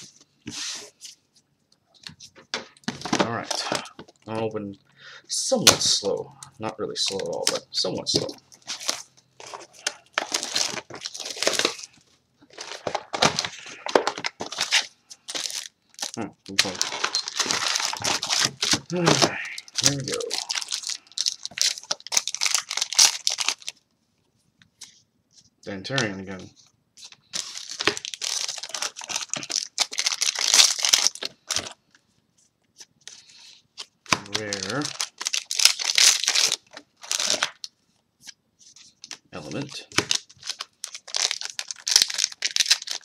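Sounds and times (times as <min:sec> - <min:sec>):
trading cards rustling: 0:07.0 - 0:23.8, 0:25.9 - 0:31.8, 0:32.8 - 0:43.0
packaging torn and crinkled: 0:08.6 - 0:23.8, 0:27.1 - 0:31.8, 0:33.8 - 0:37.7, 0:39.9 - 0:43.0.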